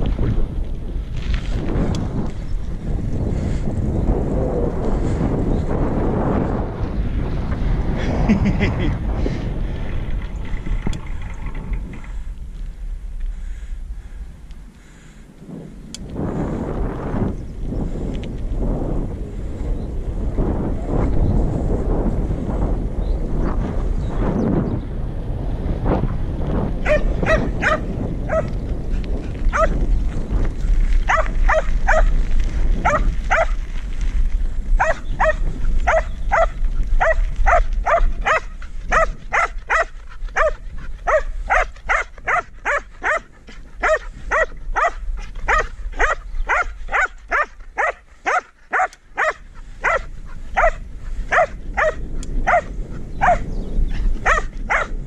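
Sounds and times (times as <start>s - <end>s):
wind rumble on microphone: 0.0s - 55.0s
dog barking: 26.8s - 28.5s, 29.5s - 29.8s, 31.1s - 32.1s, 32.8s - 33.6s, 34.8s - 53.5s, 54.2s - 55.0s.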